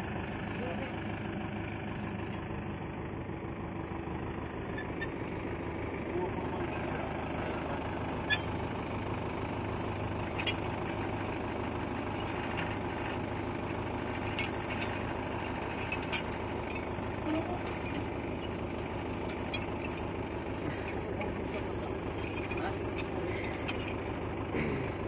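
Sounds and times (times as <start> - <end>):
tractor diesel engine idling: 0.0 - 25.0.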